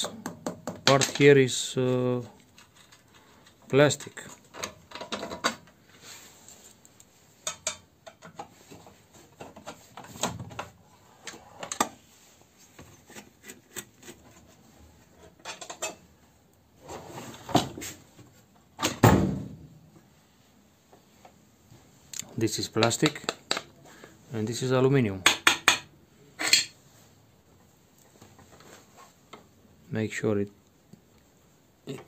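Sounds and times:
plastic cover parts clattering: 0.8s - 1.4s, 2.3s - 5.7s.

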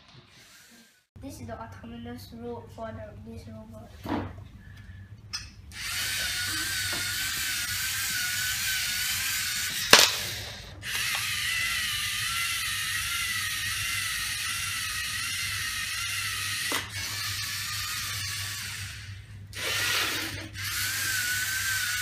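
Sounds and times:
toy robot motors whining: 5.7s - 22.0s.

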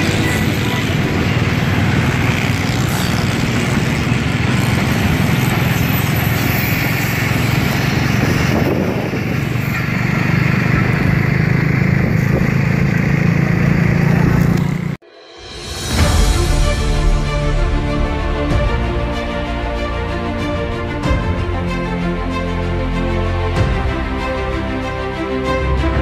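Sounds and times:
rushing noise: 0.0s - 26.0s
train coaches rumbling on track: 0.0s - 26.0s.

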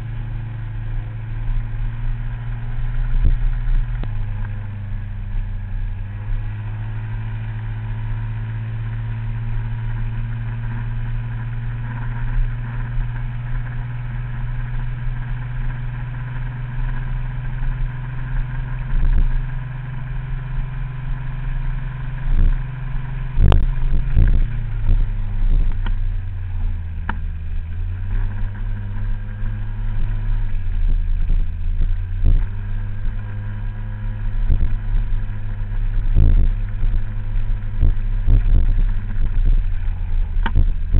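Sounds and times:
scooter engine running: 0.0s - 40.9s
sharp thumps: 37.8s - 40.9s.

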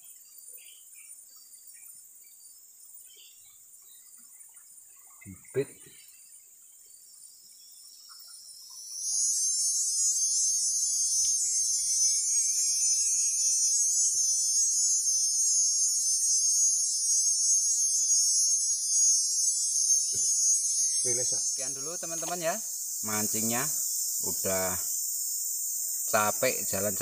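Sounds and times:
insects chorus: 0.0s - 27.0s.

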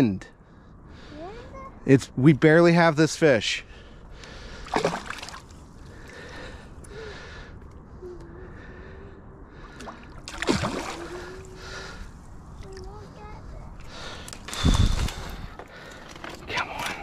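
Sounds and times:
fish thrashing and splashing water: 4.6s - 5.6s, 9.8s - 11.5s.

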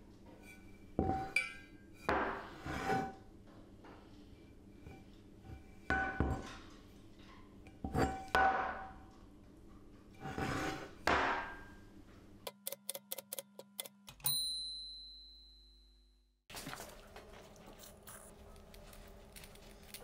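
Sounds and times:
typewriter carriage bell ding: 14.2s - 15.9s.

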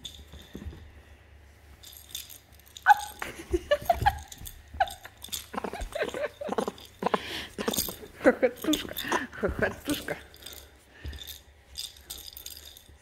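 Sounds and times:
baby monkey squeaking: 2.9s - 3.2s.

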